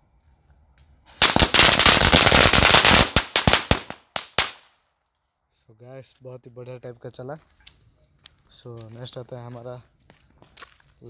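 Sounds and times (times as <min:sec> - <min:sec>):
firecrackers banging: 0:01.1 - 0:04.6.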